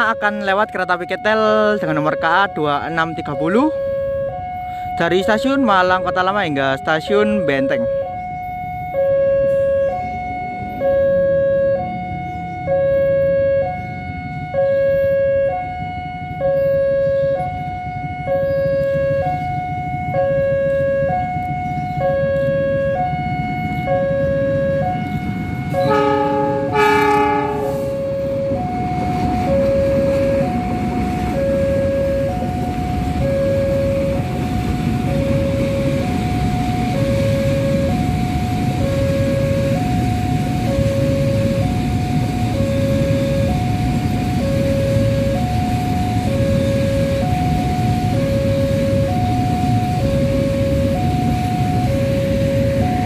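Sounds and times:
level crossing two-tone alarm: 0.0 - 53.0
locomotive rumble: 0.0 - 53.0
locomotive horn: 23.8 - 29.1.

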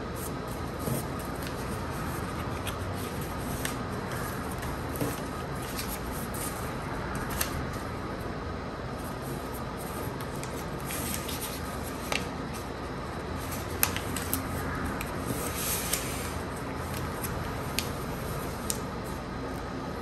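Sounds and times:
paper rustling and rubbing: 0.2 - 7.9, 9.0 - 19.7
crisp paper creasing snaps: 13.5 - 16.1, 16.8 - 18.9.

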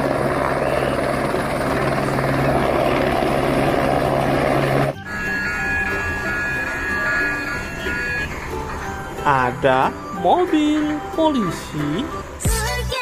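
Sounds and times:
helicopter rotor and engine: 0.0 - 12.4
short tune: 4.6 - 12.8.

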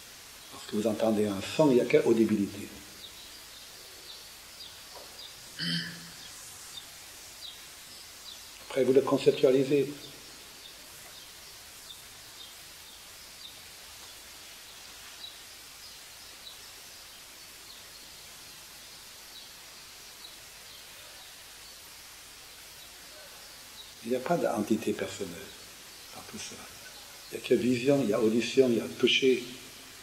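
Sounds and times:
background recording hiss: 0.0 - 30.0
faint high chirps: 1.8 - 11.2.

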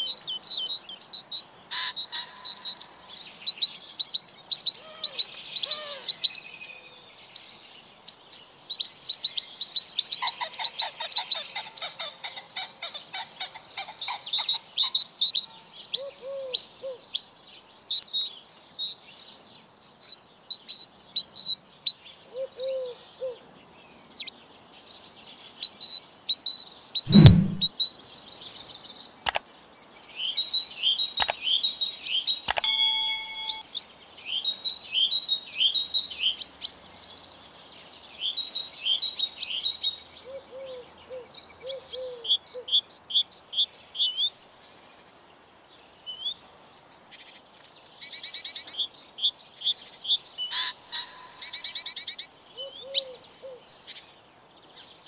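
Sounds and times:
songbirds chirping and trilling: 0.0 - 55.0
sharp knock: 27.1 - 27.7
short low bird calls: 27.1 - 27.7
faint clicks: 32.5 - 32.7
brief ring: 32.5 - 33.7.

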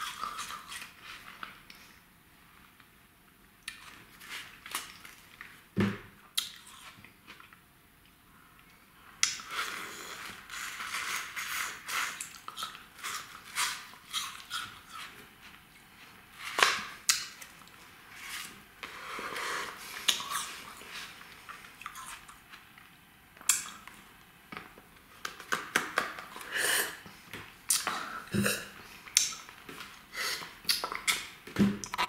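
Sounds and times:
sharp mouth clicks: 30.6 - 32.0.

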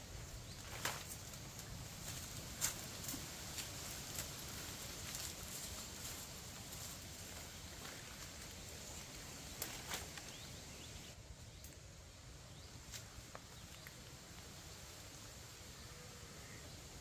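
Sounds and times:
steady high hiss: 0.0 - 17.0
twigs cracking underfoot: 0.5 - 10.6.

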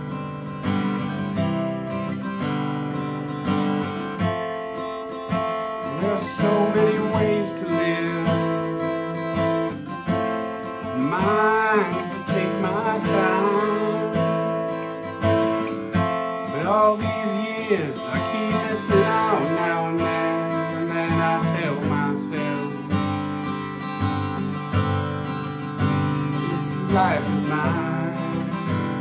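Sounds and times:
acoustic guitar strumming: 0.0 - 29.0
man singing: 5.8 - 9.8, 10.8 - 14.8, 16.4 - 23.0, 26.2 - 29.0.

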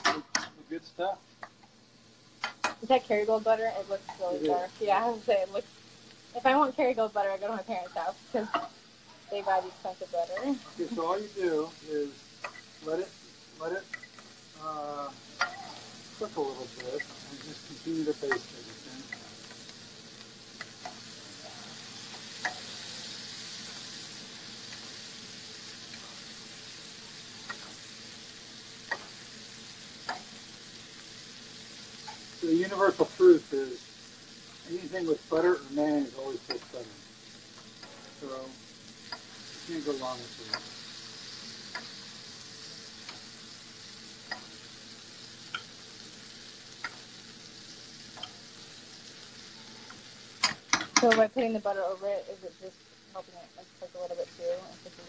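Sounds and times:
fish sizzling in a frying pan: 0.0 - 55.0
spoon clicking against pan: 41.7 - 41.9, 44.2 - 44.5, 46.8 - 47.0, 50.4 - 51.1.

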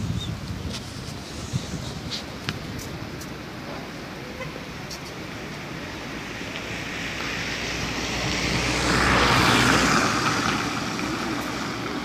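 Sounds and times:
car driving past: 6.8 - 12.0.

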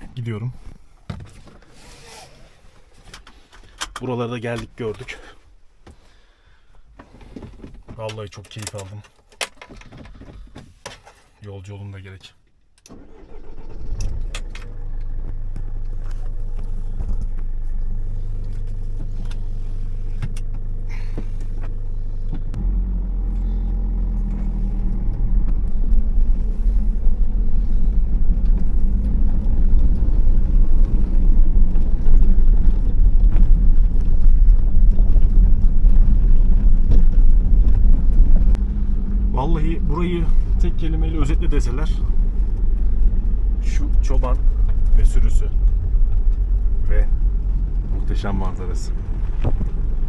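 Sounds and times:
van engine starting and idling: 12.8 - 50.0
tyres on rough track: 12.9 - 50.0.

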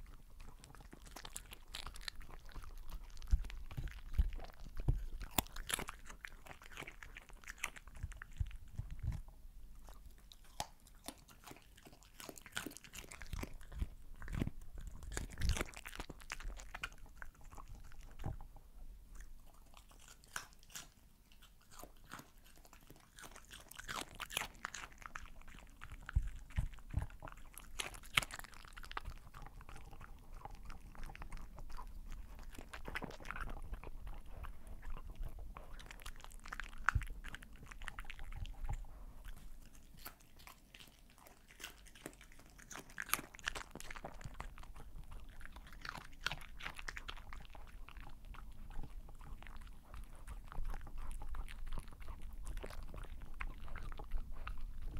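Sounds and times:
dog chewing and licking: 0.0 - 54.9.

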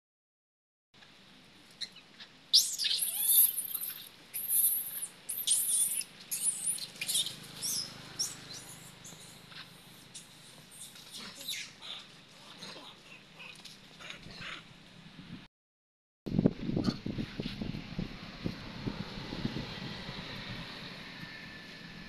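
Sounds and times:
young monkeys squealing: 1.8 - 14.6.

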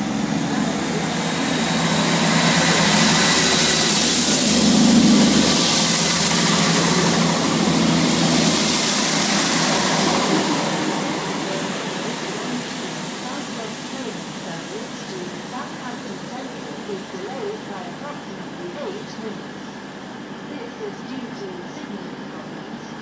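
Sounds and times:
diesel train engines accelerating: 0.0 - 23.0.

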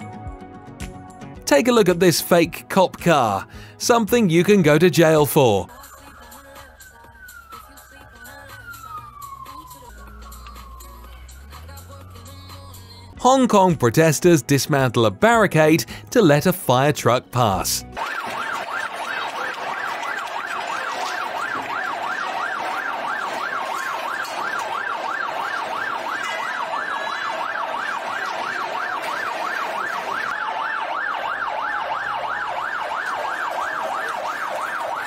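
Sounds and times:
fire engine siren yelping: 4.3 - 13.4, 18.0 - 35.0.

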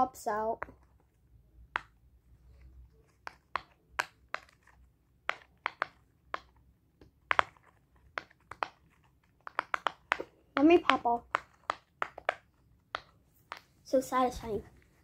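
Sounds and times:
fidget toy bubbles popping: 9.4 - 13.6.

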